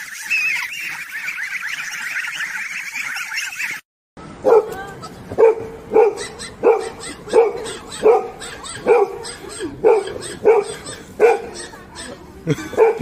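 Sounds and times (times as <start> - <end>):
dog barking: 4.4 - 4.8, 5.4 - 13.0.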